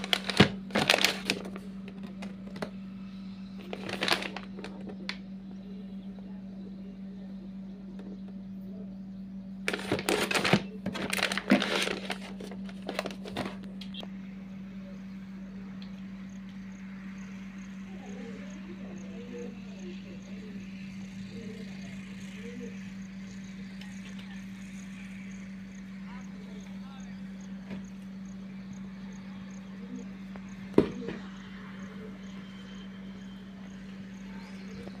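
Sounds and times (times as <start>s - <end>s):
plastic pouch crinkling: 0.0s - 2.7s, 3.6s - 5.2s, 9.7s - 14.0s
steady low hum: 0.0s - 35.0s.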